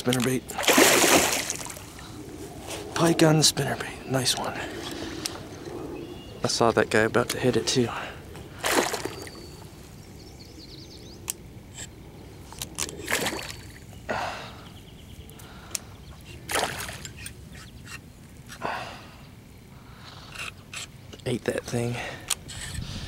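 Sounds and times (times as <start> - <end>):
fish splashing water: 0.5 - 2.0, 8.5 - 9.6, 13.0 - 13.8, 16.5 - 17.2.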